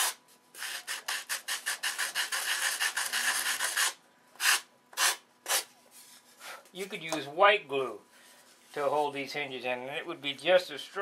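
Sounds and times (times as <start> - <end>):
sanding block on wood: 0.0 - 5.2.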